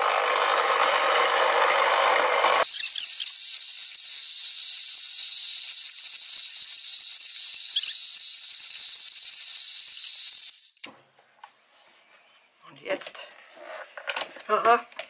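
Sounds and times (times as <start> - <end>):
high-pitched hiss: 2.7 - 10.9.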